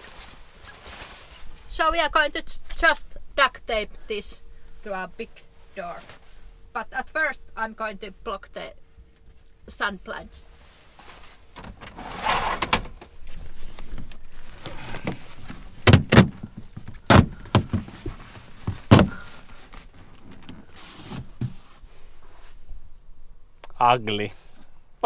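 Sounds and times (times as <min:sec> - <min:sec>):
fabric rustling and crinkling: 0:00.0 - 0:01.9, 0:10.4 - 0:22.6
knocks against van panels: 0:15.8 - 0:19.2.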